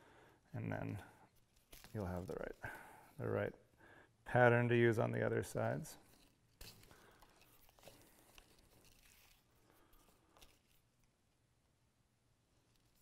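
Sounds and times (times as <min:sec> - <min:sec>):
thread rustling through leather: 0:00.8 - 0:03.2, 0:06.0 - 0:11.2.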